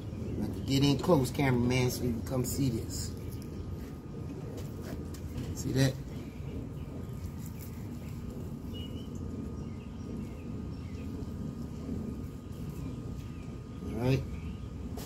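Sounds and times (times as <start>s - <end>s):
faint constant hum: 0.0s - 15.0s
low outdoor rumble: 0.0s - 15.0s.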